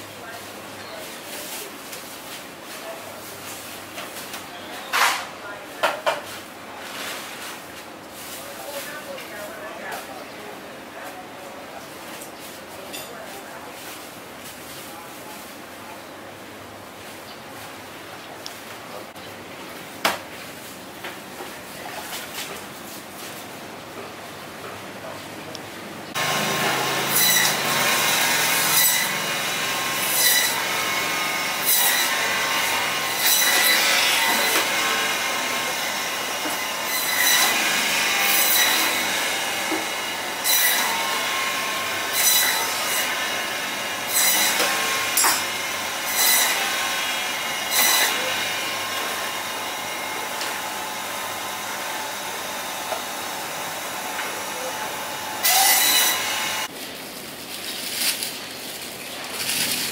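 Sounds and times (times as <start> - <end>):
bandsaw rasping through meat: 26.2 - 56.7
bandsaw whining: 26.2 - 56.7.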